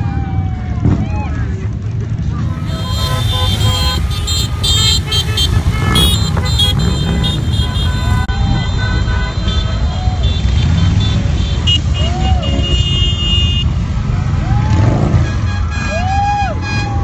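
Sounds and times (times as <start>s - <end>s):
motorcycle engines passing: 2.1s - 16.2s
short high-pitched toots: 2.4s - 8.3s.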